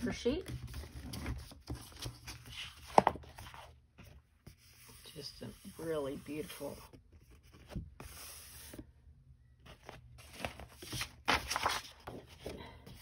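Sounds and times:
paper sheets rustling: 0:10.2 - 0:13.0.

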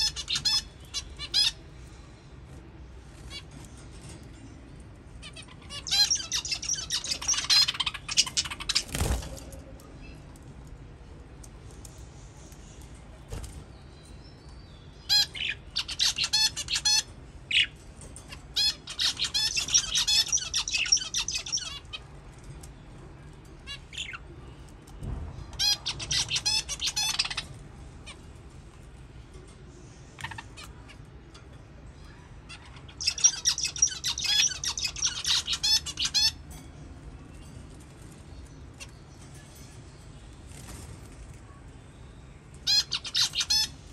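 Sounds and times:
budgerigars chirping and squawking: 0:00.0 - 0:02.0, 0:05.2 - 0:09.4, 0:14.8 - 0:22.7, 0:23.6 - 0:24.2, 0:25.6 - 0:28.6, 0:29.8 - 0:31.4, 0:32.0 - 0:36.5, 0:42.6 - 0:43.9.

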